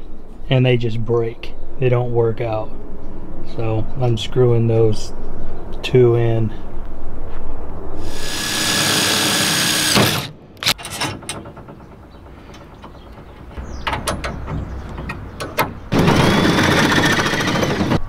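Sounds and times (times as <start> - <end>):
power driver driving screw: 8.1 - 10.9
metal tools clanking: 10.6 - 16.4.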